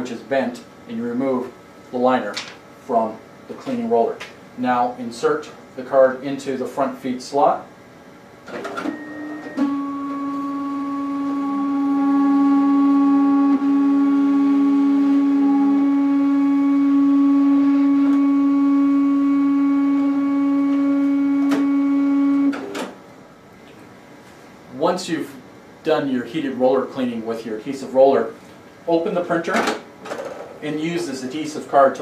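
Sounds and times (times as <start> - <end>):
card printer motor hum: 8.9 - 22.6.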